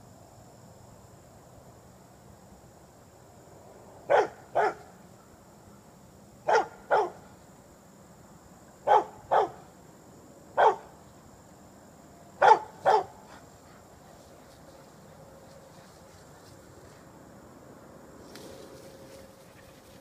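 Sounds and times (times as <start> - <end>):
dog barking: 4.1 - 4.9, 6.5 - 7.2, 8.8 - 9.6, 10.6 - 10.9, 12.4 - 13.4.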